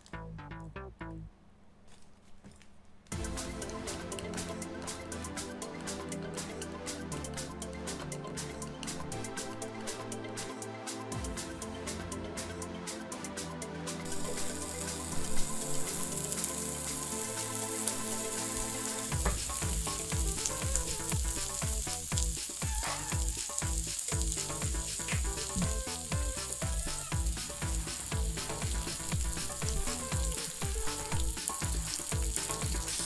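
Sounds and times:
background music with steady beat: 0.0 - 1.4, 3.1 - 33.0
meat sizzling in a frying pan: 14.1 - 33.0.

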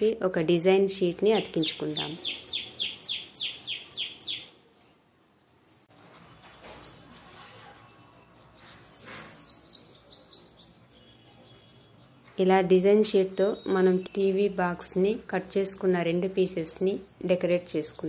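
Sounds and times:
bird chirping: 1.2 - 4.6, 5.3 - 14.6, 16.6 - 18.0.

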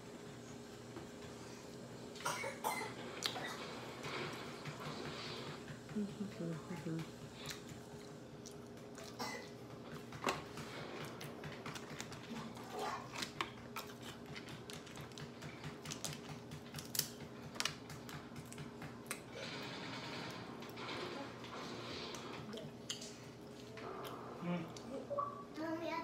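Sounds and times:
person eating: 7.4 - 19.7, 21.5 - 25.1
crab shells cracking: 15.9 - 17.8.

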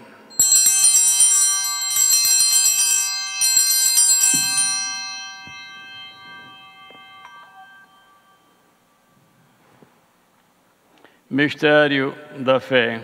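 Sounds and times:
small bells ringing: 0.3 - 9.3.

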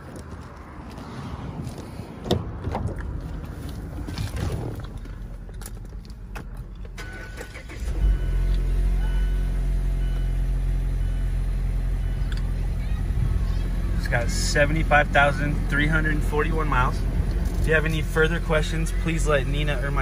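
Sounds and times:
car engine starting and idling: 1.7 - 20.0
car door knocks and clicks: 2.2 - 3.0.

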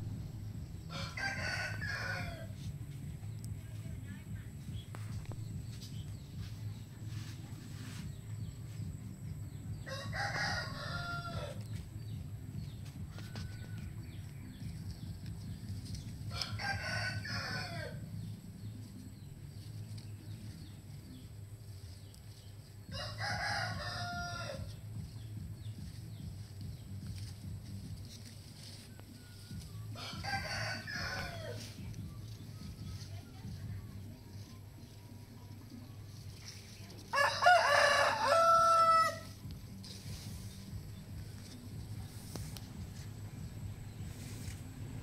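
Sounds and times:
rooster crowing: 0.9 - 2.6, 9.9 - 11.6, 16.3 - 18.0, 23.0 - 24.7, 29.9 - 31.7, 37.1 - 39.4.

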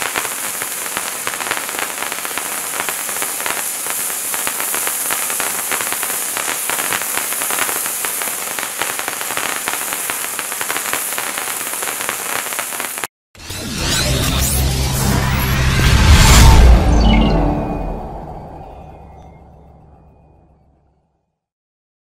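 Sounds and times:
firework fountain hissing: 0.0 - 13.1.

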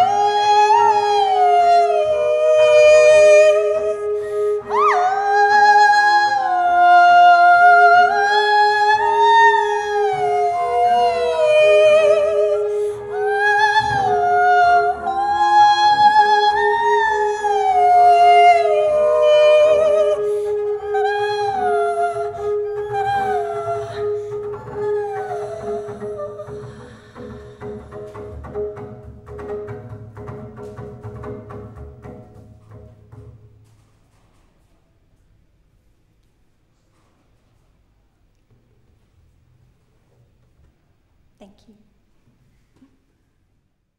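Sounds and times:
woman singing wordlessly: 0.0 - 27.4.

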